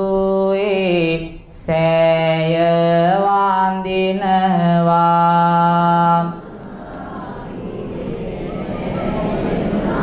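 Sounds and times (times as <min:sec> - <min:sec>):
man chanting: 0:00.0 - 0:06.4.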